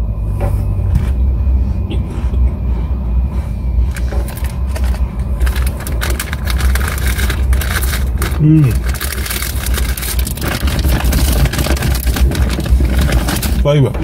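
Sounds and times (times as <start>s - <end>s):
low rumble in car cabin: 0.0s - 14.0s
plastic wrapper crinkling: 3.9s - 13.8s.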